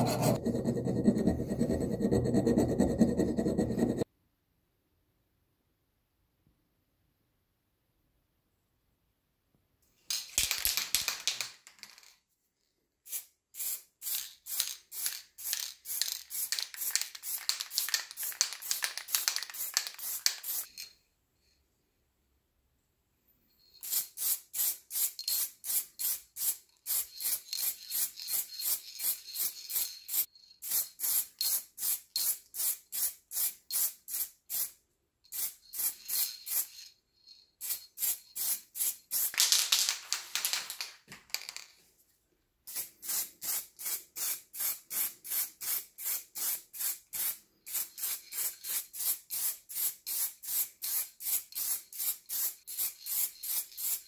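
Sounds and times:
spray can mixing ball rattling: 0:13.1 - 0:20.9, 0:23.8 - 0:36.9, 0:37.6 - 0:41.7, 0:42.7 - 0:54.0.

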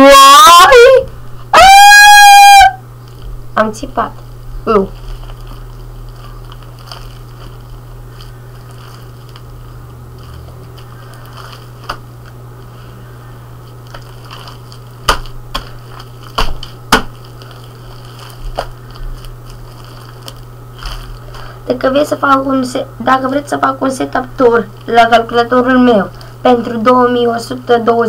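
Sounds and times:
steady low hum: 0:00.0 - 0:01.6, 0:02.7 - 0:28.0
slime squishing by hand: 0:04.7 - 0:12.9, 0:13.6 - 0:22.4.

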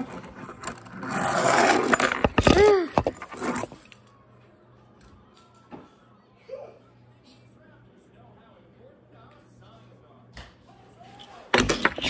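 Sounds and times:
toy bus wheels rolling on table: 0:00.0 - 0:03.9
child making vocal sound effect: 0:02.5 - 0:03.0.

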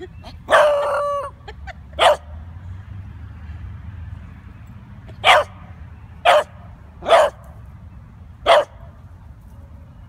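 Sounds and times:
puppy barking: 0:00.5 - 0:01.3, 0:02.0 - 0:02.3, 0:05.2 - 0:05.6, 0:06.2 - 0:07.4, 0:08.4 - 0:08.8.

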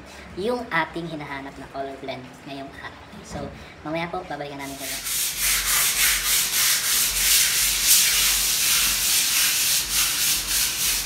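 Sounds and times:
sandpaper scratching on wall: 0:04.6 - 0:11.0.

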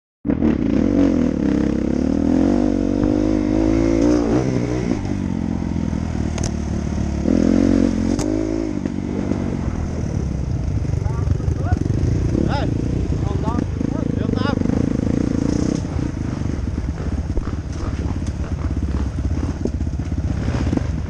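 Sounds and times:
dirt bike engine revving: 0:00.3 - 0:21.0
sharp clicks: 0:06.3 - 0:06.6.

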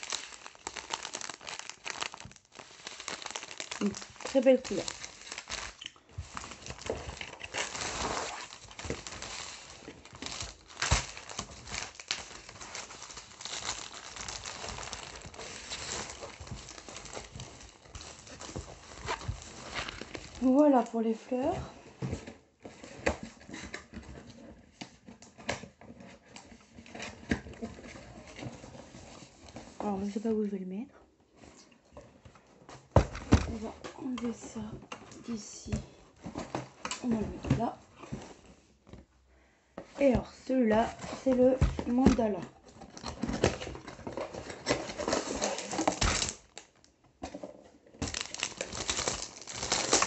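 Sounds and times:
plastic sleeve crinkling: 0:00.0 - 0:21.6, 0:40.0 - 0:46.9, 0:48.0 - 0:50.0
box and packaging handled: 0:00.0 - 0:30.2, 0:31.3 - 0:39.1, 0:39.8 - 0:50.0.

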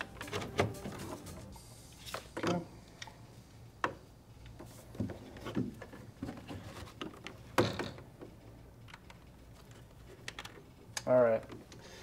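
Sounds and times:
cable handling rustling and clicks: 0:08.2 - 0:11.8.

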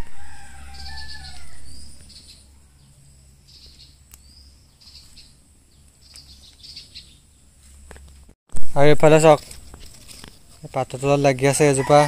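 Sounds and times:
rooster crowing: 0:00.0 - 0:02.0, 0:11.5 - 0:12.0.

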